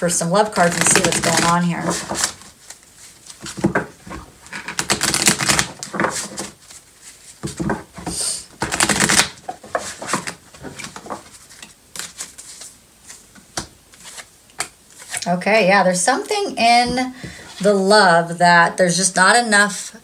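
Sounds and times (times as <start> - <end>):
cards being shuffled: 0.5 - 15.2.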